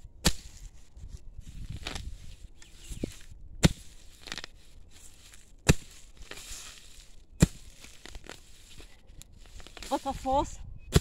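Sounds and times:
rustling of torn grass and soil: 0:00.0 - 0:11.0
hoe chopping into hard ground: 0:00.2 - 0:00.7, 0:03.0 - 0:08.9.

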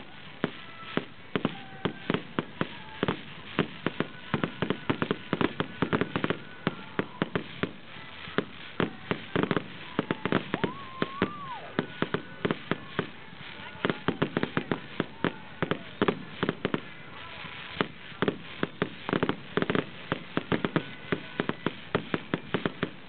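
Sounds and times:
fireworks bangs and crackles: 0:00.0 - 0:23.0.

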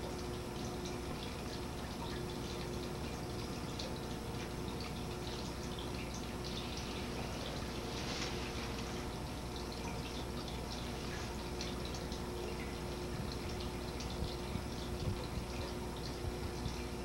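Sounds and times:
faint crackles: 0:06.8 - 0:09.2.

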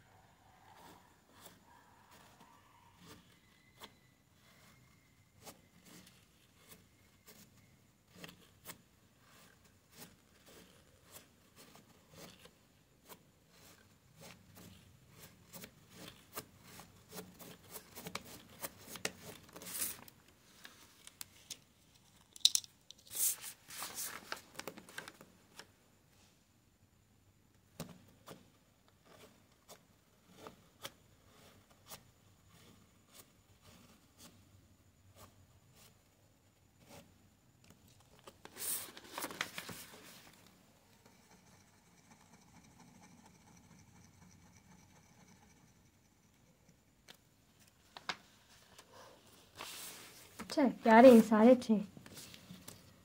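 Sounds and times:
pen scratching on paper: 0:00.6 - 0:20.0, 0:29.0 - 0:34.3, 0:41.0 - 0:46.7.

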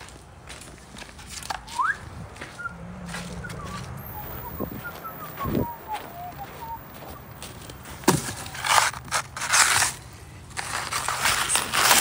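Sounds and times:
snow crunching and scraping: 0:03.0 - 0:12.0.

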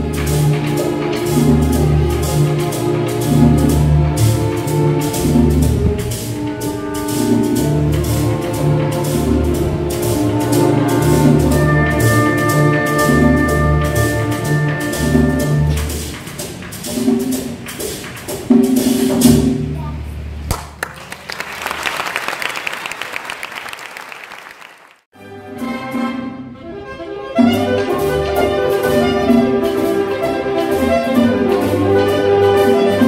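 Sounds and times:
symphony orchestra playing: 0:00.0 - 0:17.6, 0:25.2 - 0:33.0
orchestral music with strings: 0:00.0 - 0:19.6, 0:25.2 - 0:33.0
audience applause: 0:20.5 - 0:25.1.

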